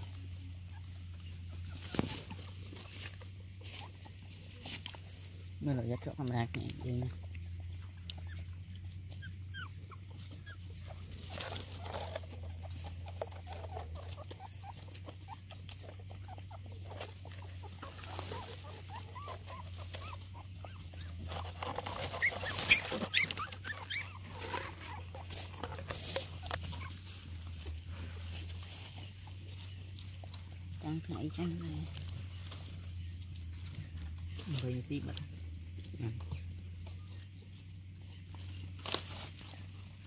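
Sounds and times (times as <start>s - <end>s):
puppies squeaking and whimpering: 0.0s - 5.1s, 7.2s - 31.3s
dog eating from plastic bowl: 10.7s - 26.9s.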